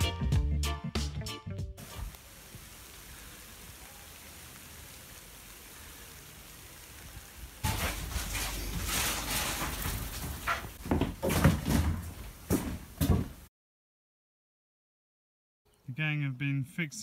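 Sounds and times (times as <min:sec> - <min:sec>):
rain falling: 0:01.8 - 0:13.4.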